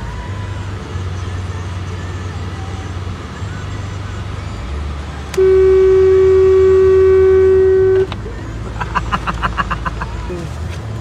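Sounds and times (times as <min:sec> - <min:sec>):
low steady rumble: 0:00.0 - 0:11.0
long horn blast: 0:05.3 - 0:08.2.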